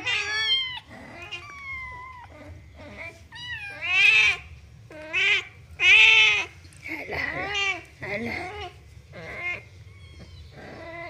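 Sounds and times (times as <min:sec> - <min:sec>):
kitten meowing: 0:00.0 - 0:06.5.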